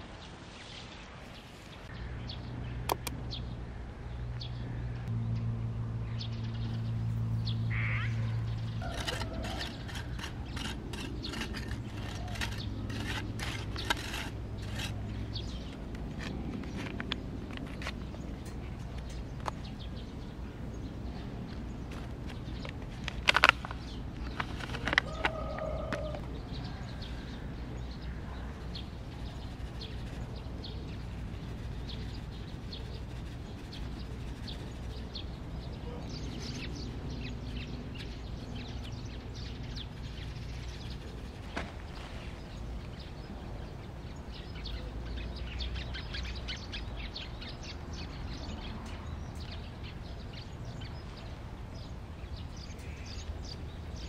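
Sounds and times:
low wind rumble: 0.0s - 54.0s
small birds chirping: 0.0s - 54.0s
sharp clicks: 2.9s - 3.2s.

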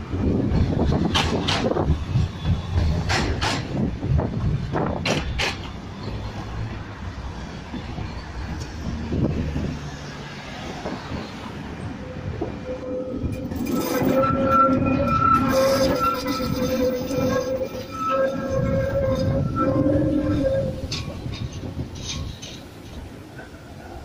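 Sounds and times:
city traffic noise: 0.0s - 24.0s
tram rumble: 0.0s - 24.0s
tram wheels knocking over rail joints: 0.4s - 5.8s.

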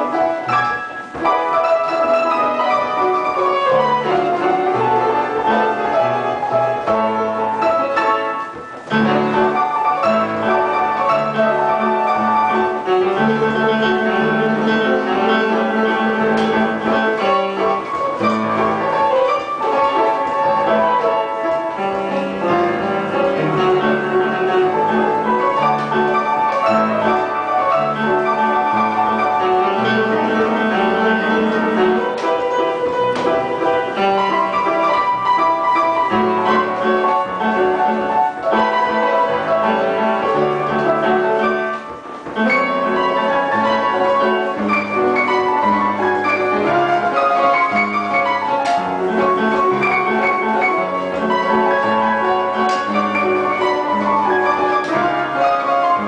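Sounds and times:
player piano playing a waltz: 0.0s - 56.0s.

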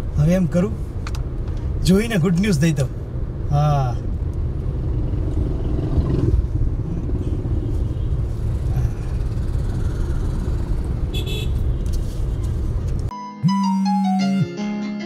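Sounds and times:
car engine and road rumble: 0.0s - 13.1s
brief high tone: 13.1s - 15.0s.

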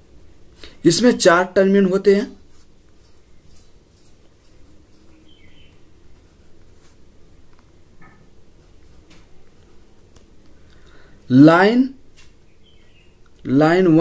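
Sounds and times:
pencil writing on paper: 2.4s - 7.1s, 8.0s - 10.1s
faint high chirps: 3.0s - 5.9s, 12.4s - 13.3s.

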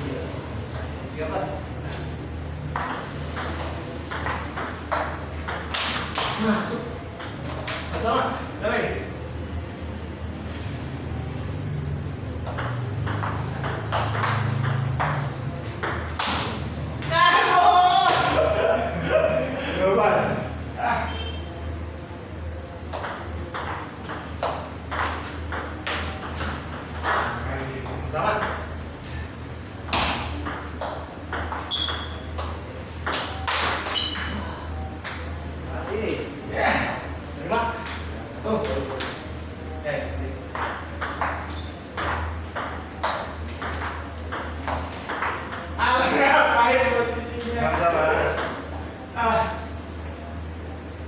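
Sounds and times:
steady low hum: 0.0s - 51.0s
ping-pong ball hits: 2.6s - 7.9s, 12.4s - 17.3s, 22.9s - 28.8s, 29.8s - 34.4s, 35.0s - 36.2s, 37.8s - 39.3s, 40.5s - 45.9s, 46.7s - 48.8s.

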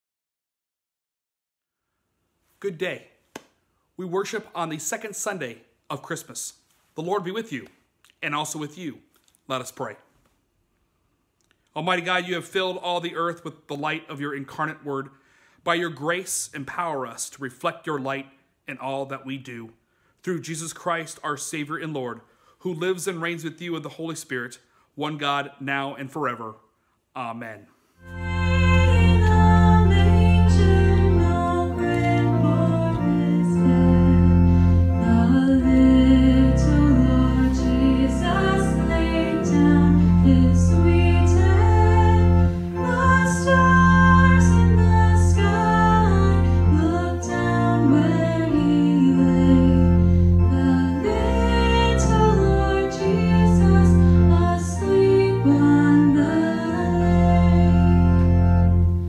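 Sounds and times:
organ sustained low notes: 28.0s - 59.0s
woman singing a hymn: 28.1s - 58.0s.

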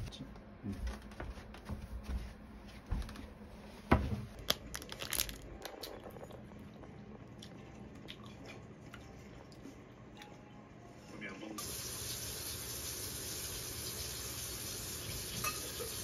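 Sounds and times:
plastic wrapper crinkling: 4.4s - 6.4s.

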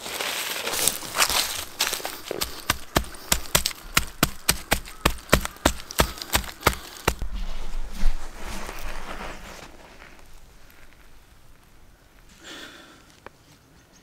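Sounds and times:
hand patting gravelly soil: 0.1s - 12.4s
low rumble: 7.2s - 12.3s.

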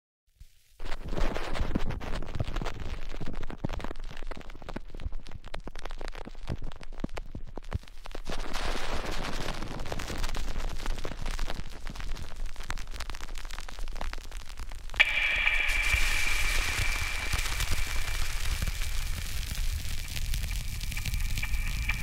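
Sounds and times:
crackling static clicks and pops: 0.3s - 22.0s
low hum: 15.0s - 22.0s
steady hiss: 15.0s - 22.0s.

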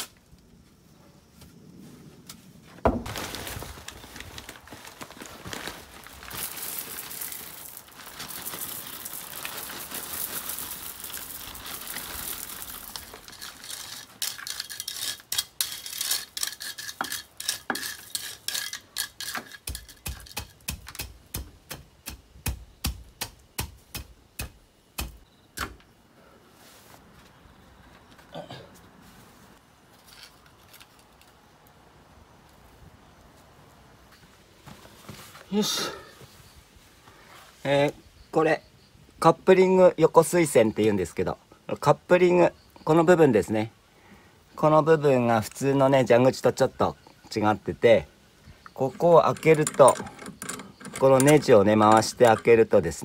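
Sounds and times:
gravel pouring from plastic bag: 3.1s - 15.1s
stones clicking and knocking: 6.3s - 22.2s.

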